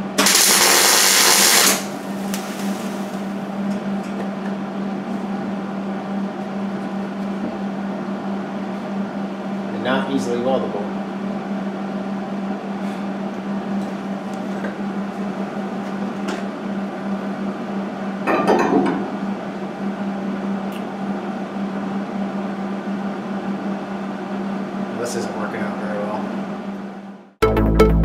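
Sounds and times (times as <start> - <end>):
welding crackling burst: 0.0 - 3.4
welding equipment hum: 0.0 - 18.2.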